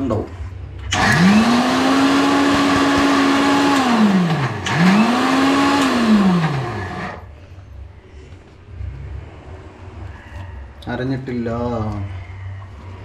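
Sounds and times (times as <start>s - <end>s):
mixer grinder motor grinding: 0.9s - 7.3s.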